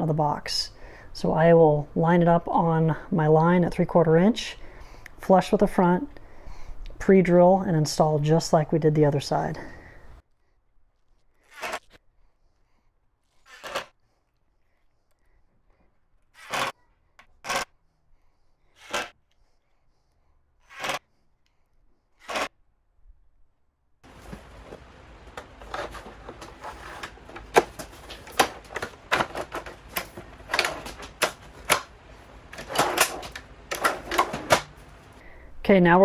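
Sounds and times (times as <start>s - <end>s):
hardware clicks and clatter: 24.1s - 34.8s.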